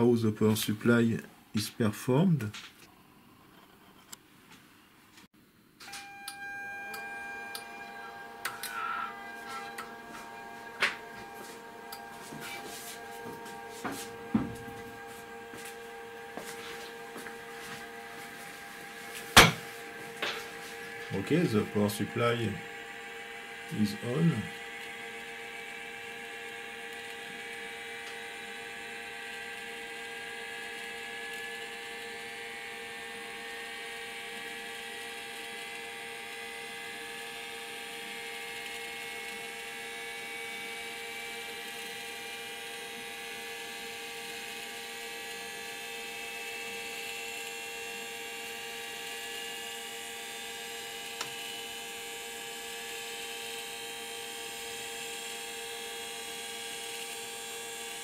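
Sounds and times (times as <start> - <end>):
steady hum: 4.8 - 34.4
gyroscope whine rising: 5.8 - 55.4.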